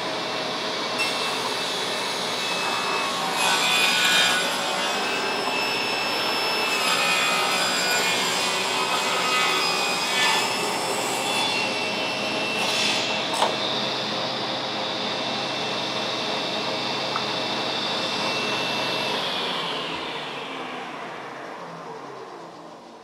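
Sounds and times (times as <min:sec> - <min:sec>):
table saw ripping wood: 0:01.0 - 0:13.8.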